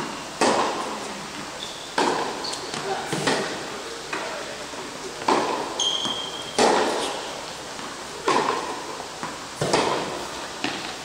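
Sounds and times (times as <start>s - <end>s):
racket hitting tennis ball: 0.0s - 1.0s, 2.0s - 4.4s, 5.2s - 11.0s
short high squeak: 1.6s - 2.7s, 5.8s - 6.6s.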